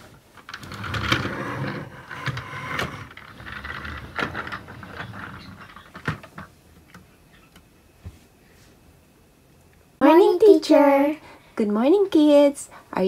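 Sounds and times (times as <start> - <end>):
plastic toys clattering: 2.1 - 6.5.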